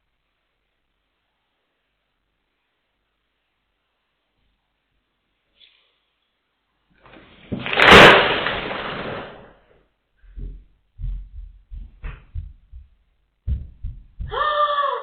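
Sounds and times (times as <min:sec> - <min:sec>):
artificial tree crashing onto tiles: 0:07.1 - 0:09.7
soft thumps: 0:10.3 - 0:14.4.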